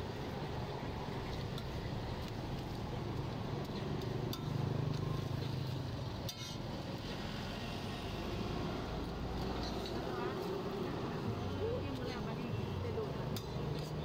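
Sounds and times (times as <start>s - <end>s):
metal spatula scraping griddle: 6.3s - 6.6s.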